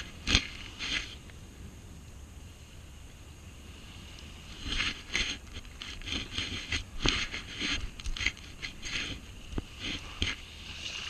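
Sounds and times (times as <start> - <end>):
scraping on coarse sand: 0.0 - 1.5, 2.4 - 11.0.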